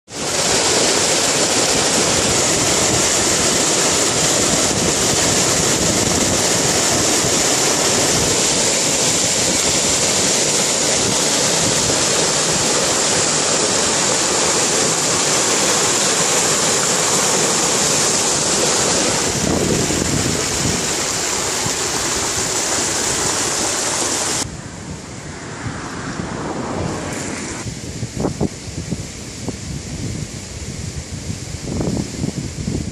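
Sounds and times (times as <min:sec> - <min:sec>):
floodwater rushing through a sluice: 0:00.1 - 0:24.5.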